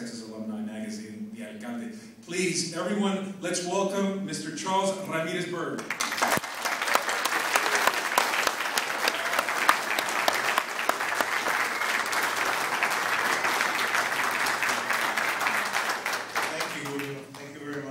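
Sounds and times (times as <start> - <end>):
audience applauding: 5.8 - 17.9.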